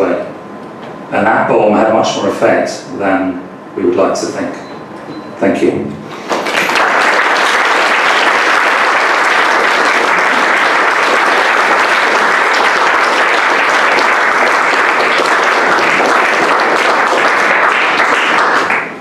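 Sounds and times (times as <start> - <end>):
audience applauding: 6.2 - 19.0.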